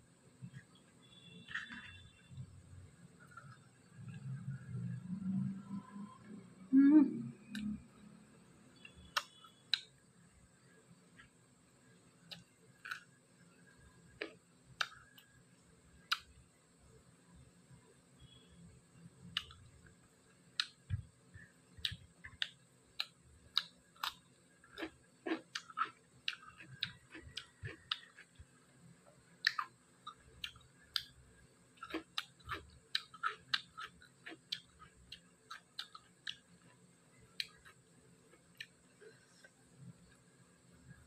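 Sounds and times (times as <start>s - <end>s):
mouth clicks: 7.4s - 7.8s, 8.9s - 9.9s
wet chewing: 21.8s - 28.5s, 31.8s - 39.6s.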